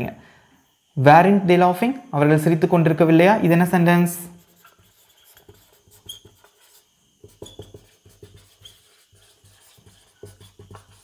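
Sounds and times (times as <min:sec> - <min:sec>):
marker writing on whiteboard: 0:04.3 - 0:11.0.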